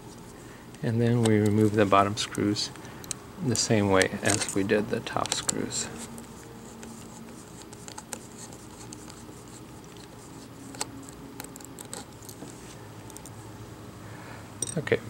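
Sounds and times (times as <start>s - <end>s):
steady low hum: 0.0s - 15.0s
screwdriver clicking and scraping: 4.0s - 5.6s, 9.8s - 12.5s.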